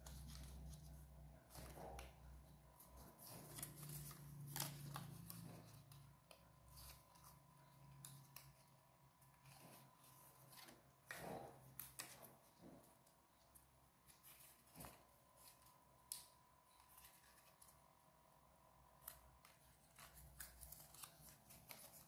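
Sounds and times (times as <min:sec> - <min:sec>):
paper rustling and crackling: 0:00.0 - 0:18.0, 0:19.0 - 0:22.0.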